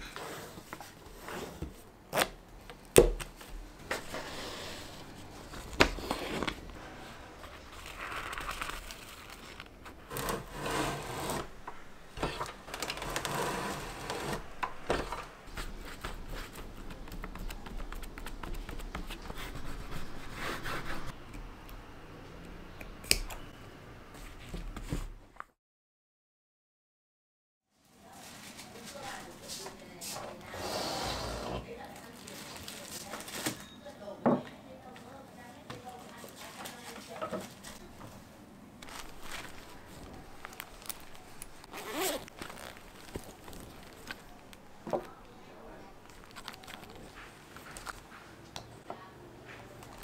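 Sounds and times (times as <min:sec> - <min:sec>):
paper rustling and scraping: 0:03.4 - 0:21.1, 0:38.8 - 0:44.7, 0:46.0 - 0:48.3.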